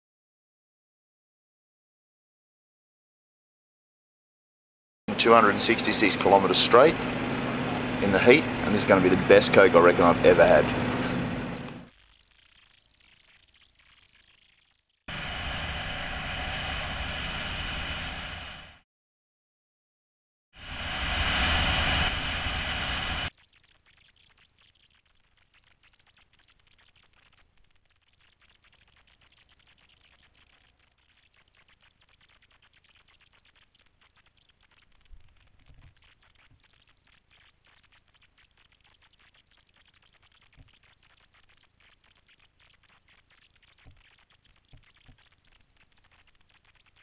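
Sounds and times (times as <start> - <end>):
motorcycle at speed: 5.1 - 11.9, 15.1 - 18.8
faint steady hiss: 20.6 - 47.0.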